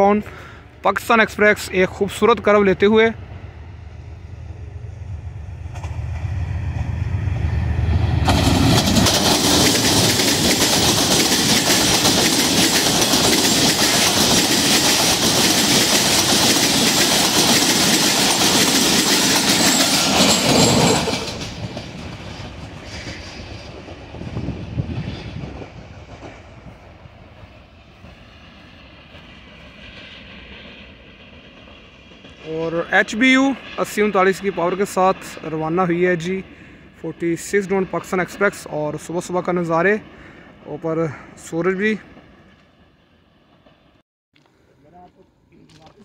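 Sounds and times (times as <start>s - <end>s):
locomotive engine rumble: 0.0s - 41.3s
train wheels clattering on rails: 7.8s - 28.2s.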